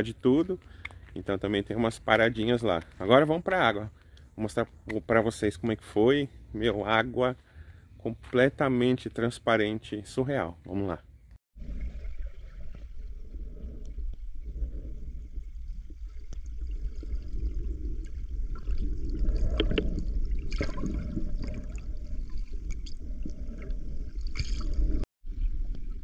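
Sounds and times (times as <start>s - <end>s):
water gurgling: 11.6s - 25.8s
muffled underwater rumble: 11.6s - 26.0s
small underwater clicks: 19.4s - 20.1s.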